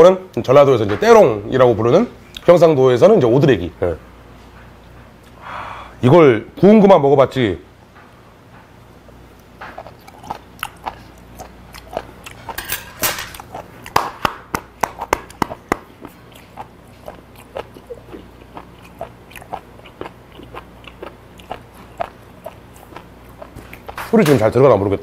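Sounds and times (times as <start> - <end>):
crunchy chewing: 9.3 - 24.2.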